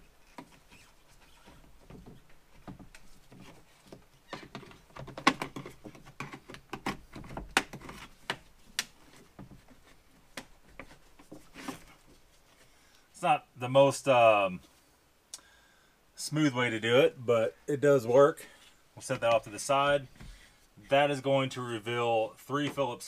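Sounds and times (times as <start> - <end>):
quiet rubbing: 0.0 - 4.9, 7.8 - 13.1.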